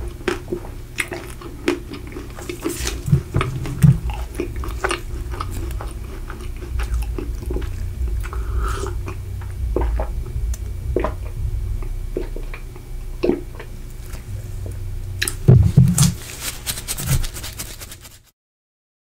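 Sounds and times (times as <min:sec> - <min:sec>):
wet mouth sounds: 0:01.0 - 0:14.3.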